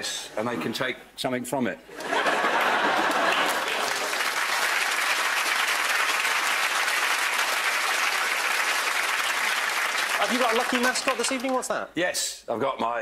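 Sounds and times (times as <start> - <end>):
audience applauding: 2.0 - 11.8.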